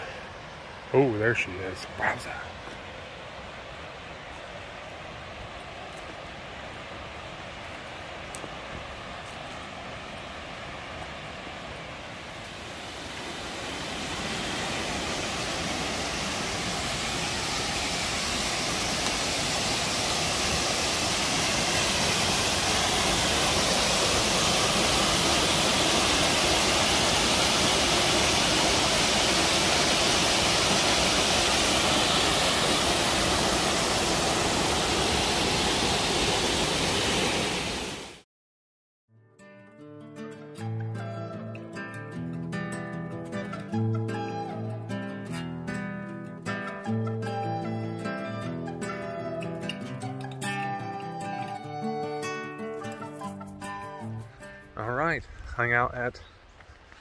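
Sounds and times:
waterfall rushing water: 0.0 - 38.2.

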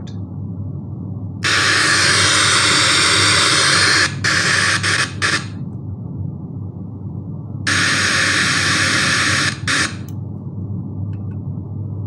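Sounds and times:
low hum: 0.0 - 12.0
loud static hiss from speakers: 1.4 - 5.7, 7.6 - 10.2.

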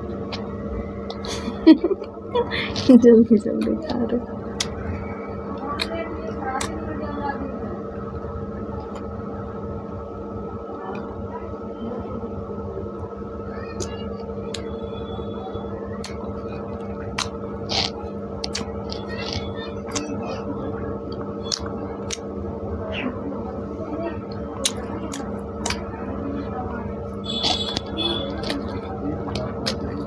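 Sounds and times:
steady hum: 0.0 - 30.0
chewing soft bread: 15.9 - 22.4, 24.3 - 30.0
wet mouth smacks and clicks: 17.2 - 20.1.

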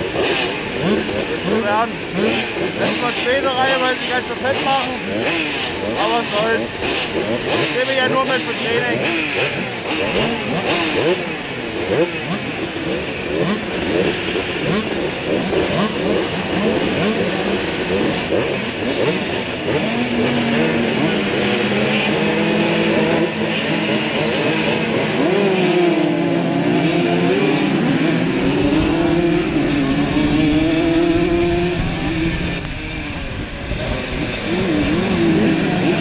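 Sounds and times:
two-stroke motorbike engines revving: 0.0 - 36.0.

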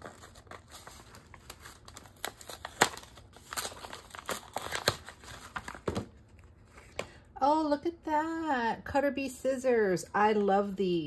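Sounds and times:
gift wrapping crinkling: 0.0 - 7.1.

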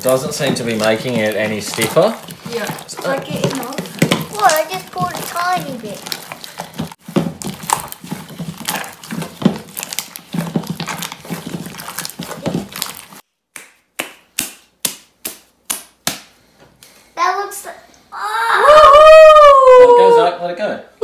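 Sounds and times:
slime squelching and popping: 0.0 - 16.3.

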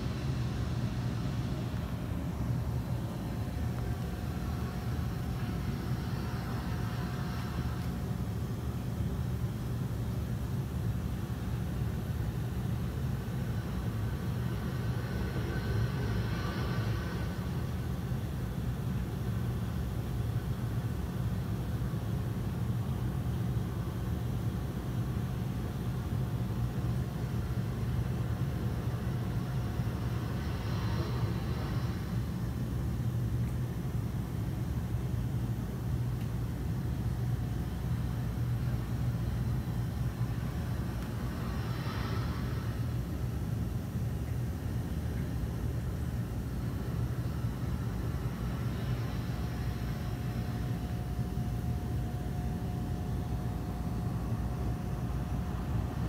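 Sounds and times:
aquarium pumps humming: 0.0 - 56.0
circulating water hissing: 0.0 - 56.0
faint steady whine: 0.0 - 56.0.

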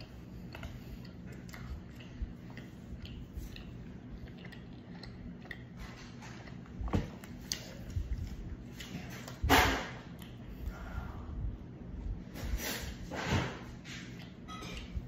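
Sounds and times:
wet chewing mouth clicks: 0.0 - 9.4, 10.1 - 10.7.

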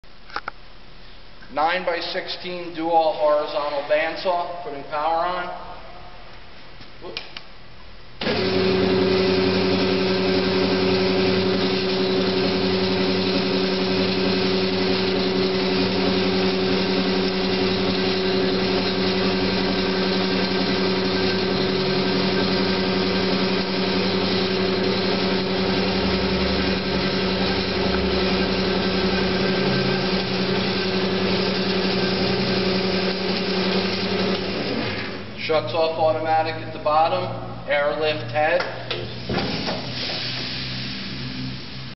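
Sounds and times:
band saw running: 8.2 - 35.2.

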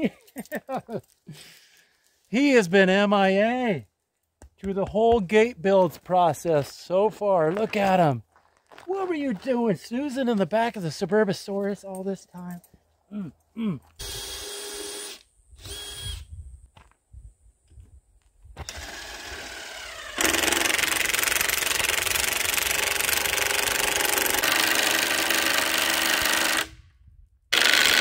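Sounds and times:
cordless drill driving into wood: 14.0 - 16.3, 18.6 - 26.8, 27.5 - 28.0.

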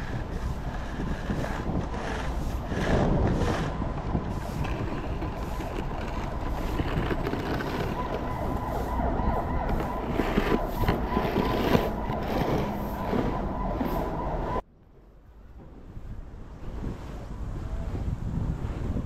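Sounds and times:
city traffic noise: 0.0 - 19.0.

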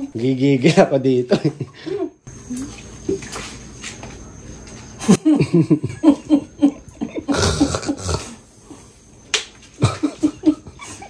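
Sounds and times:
woman laughing: 1.3 - 2.2, 5.0 - 8.3, 9.7 - 11.0.

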